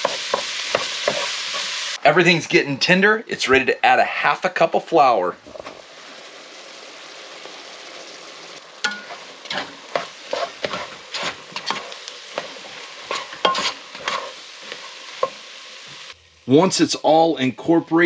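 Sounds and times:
roux sizzling: 0.0s - 2.5s, 4.5s - 17.6s
spoon scraping a pot: 8.9s - 15.4s.

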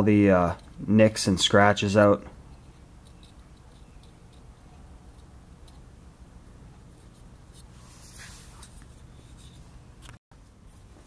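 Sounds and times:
low steady hum: 0.0s - 11.0s
fingers handling metal tool: 2.5s - 5.8s.

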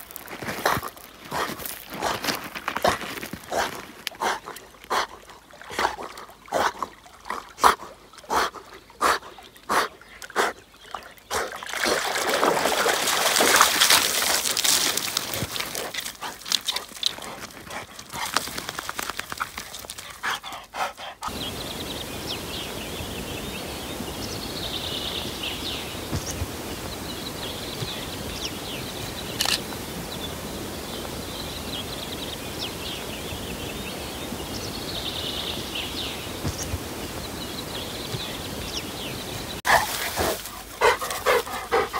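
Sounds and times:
small birds chirping: 0.0s - 12.0s, 14.5s - 41.9s
sharp water strokes: 0.6s - 21.4s
rushing pouring water: 11.6s - 16.7s
outdoor hiss: 20.5s - 41.9s.

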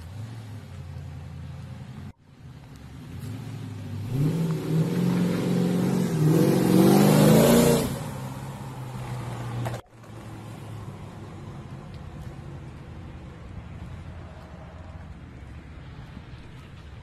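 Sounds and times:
faint steady engine: 0.0s - 4.2s, 8.6s - 17.0s
car accelerating past: 3.0s - 11.5s.

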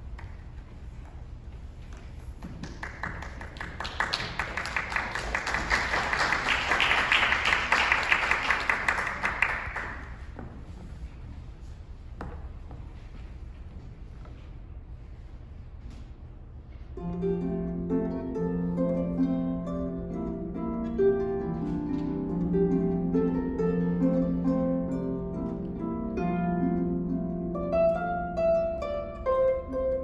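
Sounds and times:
audience applauding: 2.4s - 10.4s.

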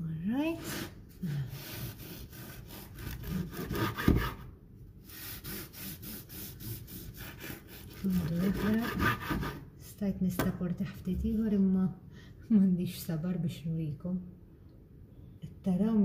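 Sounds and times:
bread knife sawing through crust: 0.6s - 4.4s, 5.0s - 9.6s.

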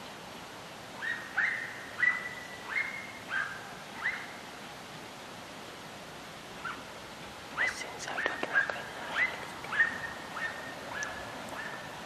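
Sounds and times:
hound baying: 7.6s - 11.9s.

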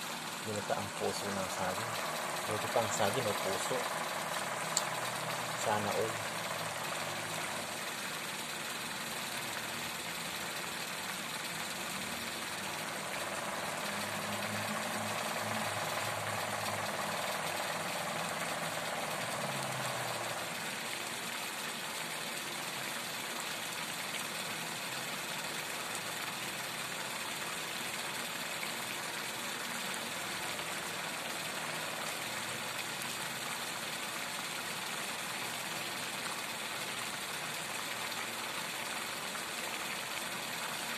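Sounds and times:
low engine-like hum: 0.0s - 23.1s
coconut milk bubbling: 0.0s - 40.9s.

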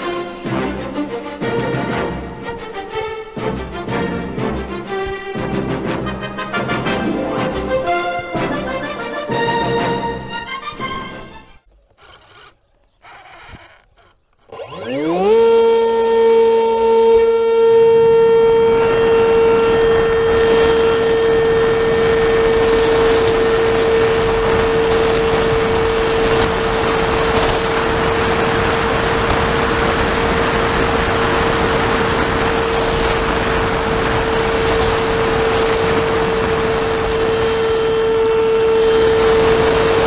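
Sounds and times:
electric motor and propeller: 11.6s - 40.0s
wind rushing over microphone: 14.7s - 40.0s.

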